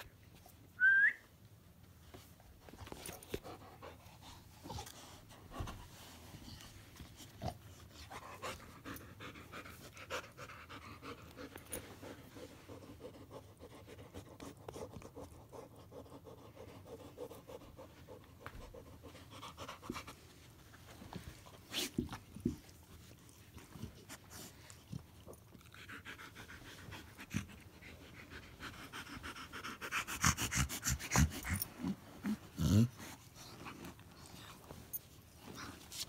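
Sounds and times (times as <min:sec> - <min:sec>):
dog snorting and panting: 0:21.6 - 0:34.4.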